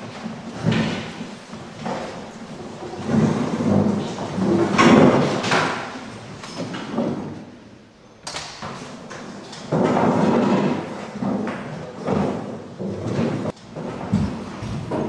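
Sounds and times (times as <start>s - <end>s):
people walking into room: 0.0s - 15.0s
door opening and shutting: 8.2s - 12.4s.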